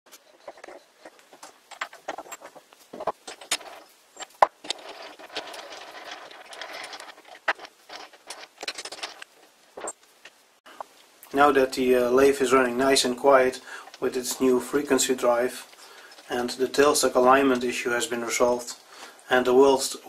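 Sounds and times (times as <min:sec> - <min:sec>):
metal scraping: 0:00.1 - 0:10.0.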